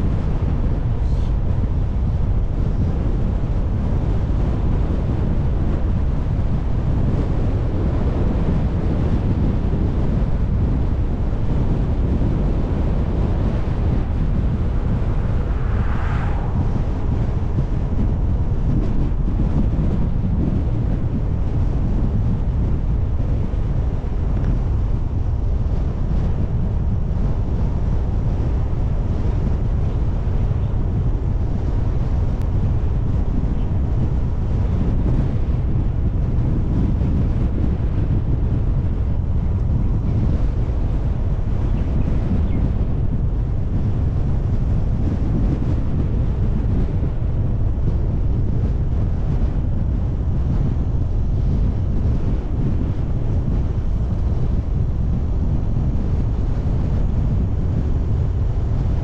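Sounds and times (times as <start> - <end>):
wind buffeting microphone: 0.0 - 59.0
car road noise: 9.9 - 25.7.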